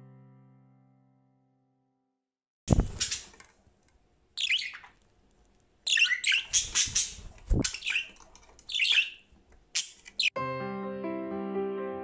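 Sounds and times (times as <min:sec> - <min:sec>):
budgerigar chirping: 0:04.4 - 0:05.0, 0:05.9 - 0:10.4.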